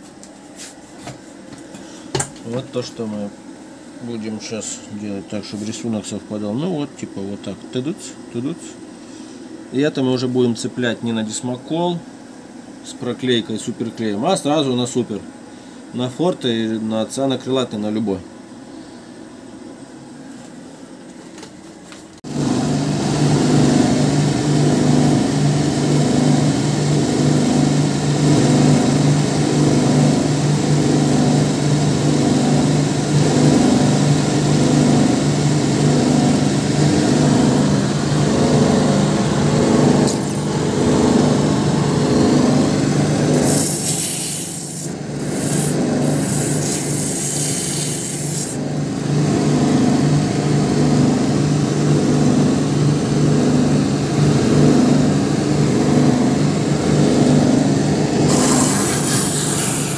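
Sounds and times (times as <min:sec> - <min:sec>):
machine motor humming: 0:32.3 - 0:51.2, 0:53.2 - 0:59.9.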